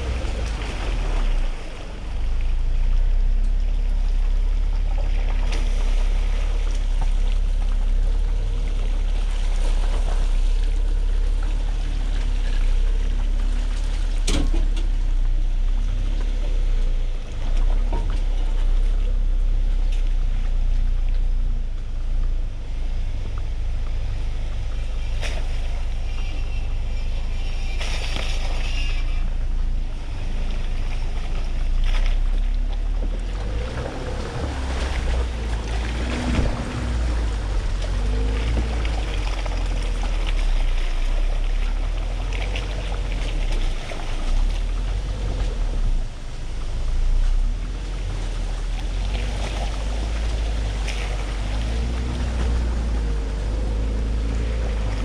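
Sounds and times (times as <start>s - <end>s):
engine and drivetrain rumble: 0.0s - 55.0s
wind buffeting microphone: 33.1s - 41.4s.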